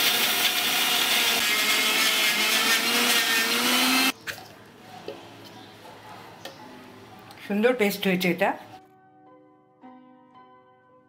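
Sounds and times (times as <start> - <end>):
electric mixer grinder running: 0.0 - 4.1.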